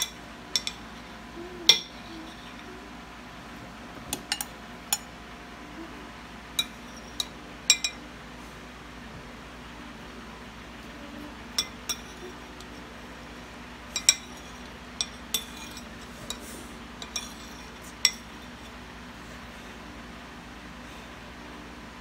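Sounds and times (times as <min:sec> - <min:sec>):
metal spoon clinking on plates: 0:00.0 - 0:00.9, 0:06.6 - 0:08.0, 0:11.5 - 0:12.2, 0:13.9 - 0:18.3.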